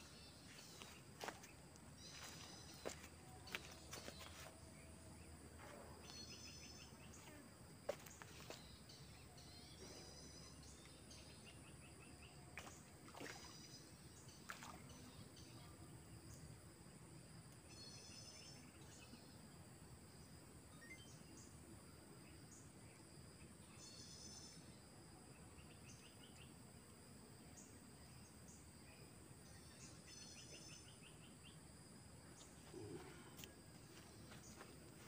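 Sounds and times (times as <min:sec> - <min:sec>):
high insect drone: 0:00.0 - 0:19.5.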